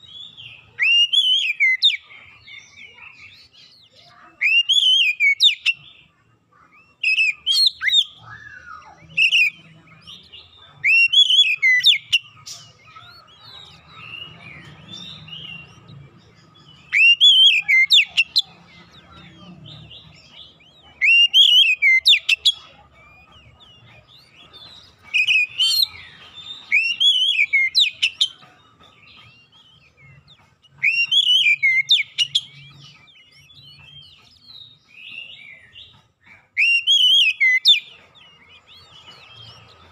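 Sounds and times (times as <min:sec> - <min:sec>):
songbird whistling song: 0:00.0 - 0:39.9.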